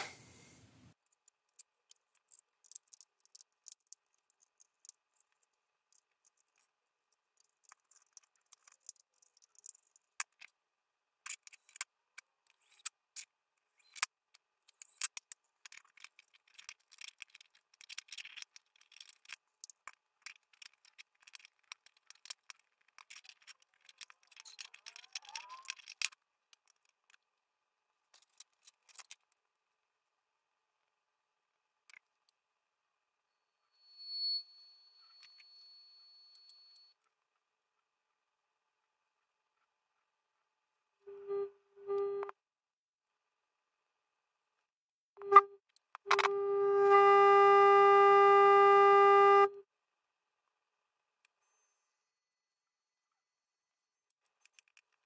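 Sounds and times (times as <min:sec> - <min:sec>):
small metal parts clicking: 0:01.0 - 0:10.6, 0:11.2 - 0:27.2, 0:28.1 - 0:29.4.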